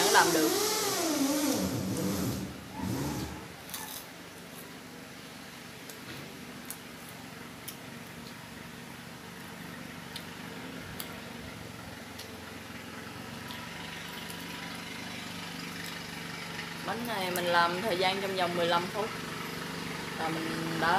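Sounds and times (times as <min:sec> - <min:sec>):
crunchy chewing clicks: 0:06.6 - 0:08.4, 0:10.0 - 0:11.2.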